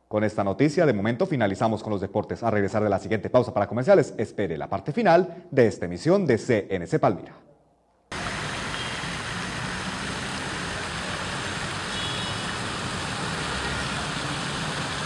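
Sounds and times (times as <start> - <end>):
city ambience rushing noise: 8.1 - 15.0.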